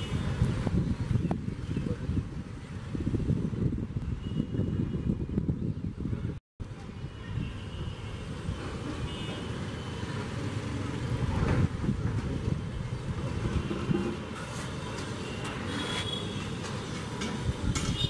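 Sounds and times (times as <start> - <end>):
distant street traffic rumble: 0.0 - 18.0.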